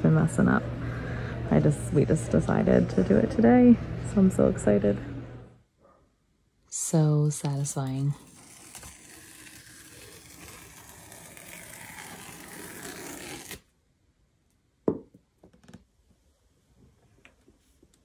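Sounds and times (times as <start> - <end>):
cardboard tear strip ripping: 8.2 - 13.7.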